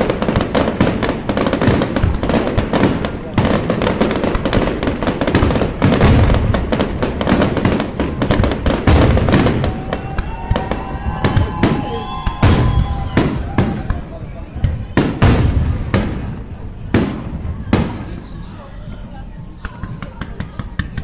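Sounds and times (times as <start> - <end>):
fireworks bangs and crackles: 0.0 - 21.0.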